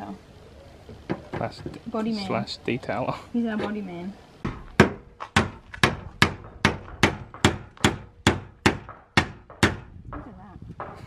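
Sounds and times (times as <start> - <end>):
hammer striking steel fender: 4.5 - 9.9.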